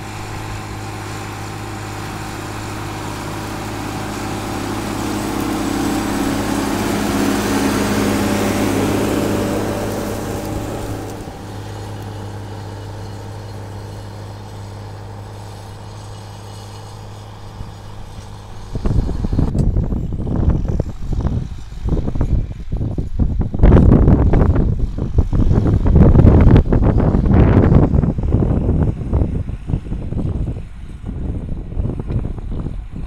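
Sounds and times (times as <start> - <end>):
wind buffeting microphone: 0.0 - 15.9, 17.0 - 33.0
tractor diesel engine running: 0.0 - 33.0.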